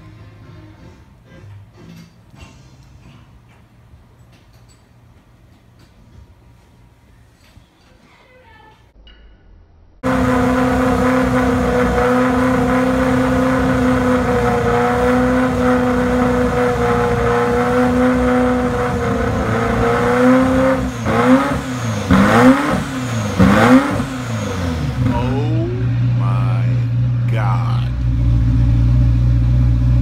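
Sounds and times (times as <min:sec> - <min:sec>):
car engine idling and revving: 0:10.0 - 0:30.0.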